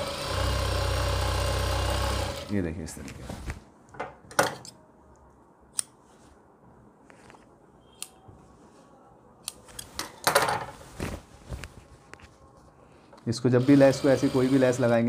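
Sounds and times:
cloth rustling: 10.6s - 13.1s.

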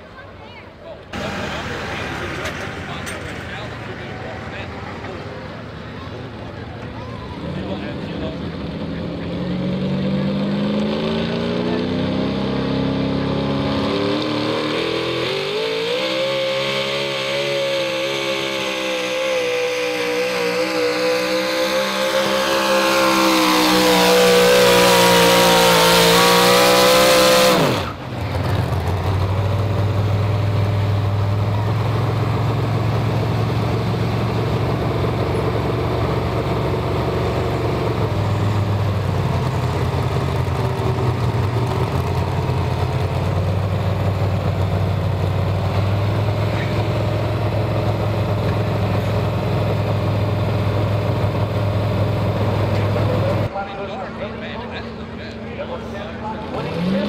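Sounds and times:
engine idling: 1.0s - 9.5s, 27.8s - 56.4s
truck engine revving hard: 1.1s - 53.5s, 55.8s - 57.0s.

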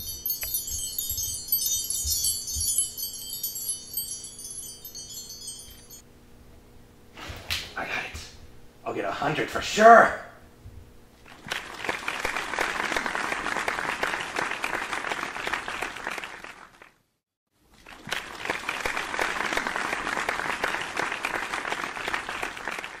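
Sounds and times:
hands clapping: 11.5s - 16.6s, 18.0s - 23.0s.

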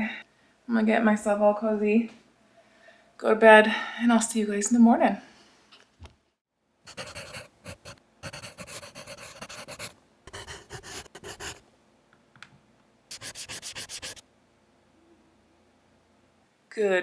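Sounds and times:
marker scribbling on paper: 6.9s - 11.6s, 13.1s - 14.2s.

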